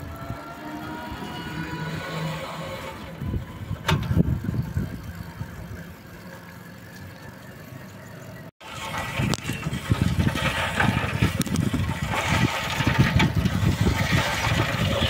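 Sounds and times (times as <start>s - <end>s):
bicycle rolling on road: 0.0s - 15.0s
wind rumble on microphone: 2.7s - 6.0s, 8.8s - 15.0s.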